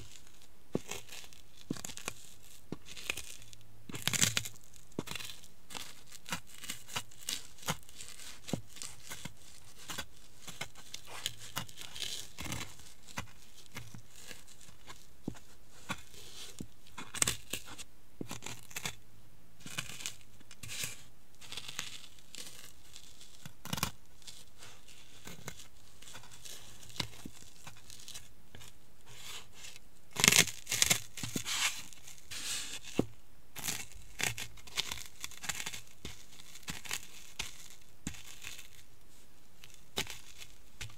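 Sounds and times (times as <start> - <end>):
snacks crunching under shoes: 0.0 - 19.0, 39.6 - 40.9.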